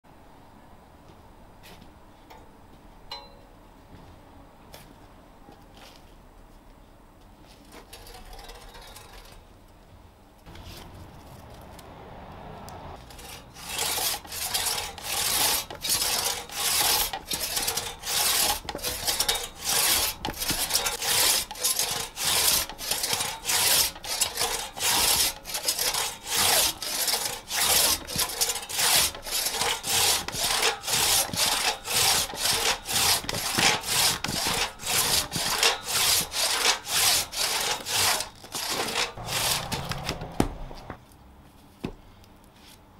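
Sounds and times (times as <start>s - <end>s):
crosscut saw rasping through log: 13.0s - 40.9s.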